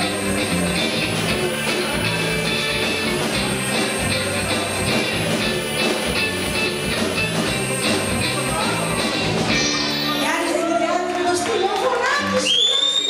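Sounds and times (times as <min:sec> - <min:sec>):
rock band playing: 0:00.0 - 0:12.5.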